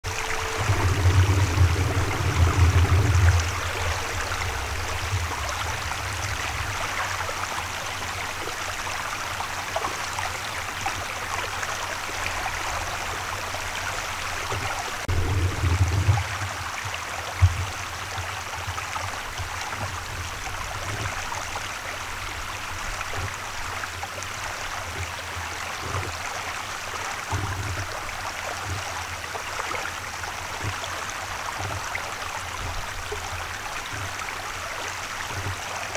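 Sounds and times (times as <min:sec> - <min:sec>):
low rumbling bumps: 0:00.0 - 0:08.9, 0:12.3 - 0:17.8
river water rushing: 0:00.0 - 0:35.9.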